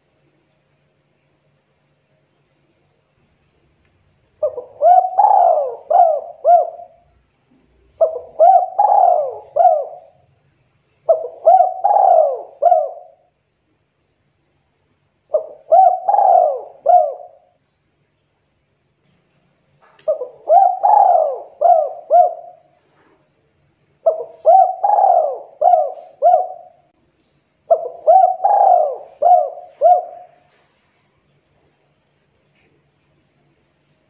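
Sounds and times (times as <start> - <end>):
dove cooing: 4.4 - 10.3, 11.0 - 13.3, 15.3 - 17.6, 20.1 - 23.1, 24.0 - 26.9, 27.7 - 30.6.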